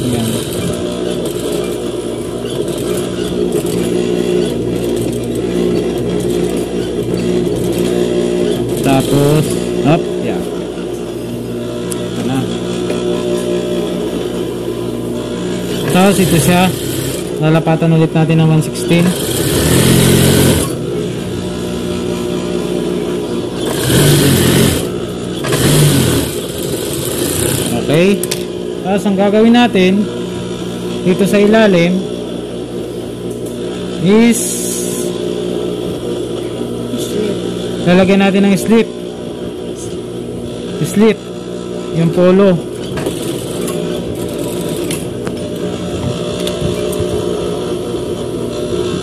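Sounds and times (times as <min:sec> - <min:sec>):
sewing machine fast stitching: 0:00.0 - 0:02.0, 0:02.6 - 0:09.9, 0:15.6 - 0:17.4, 0:18.8 - 0:20.8, 0:23.6 - 0:28.0, 0:42.8 - 0:45.2
sewing machine motor hum: 0:00.0 - 0:49.0.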